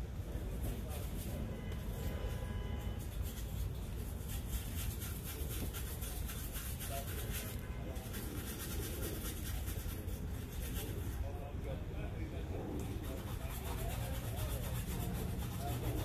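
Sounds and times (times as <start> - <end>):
abrasive scrubbing on steel: 2.9 - 11.4, 12.8 - 16.0.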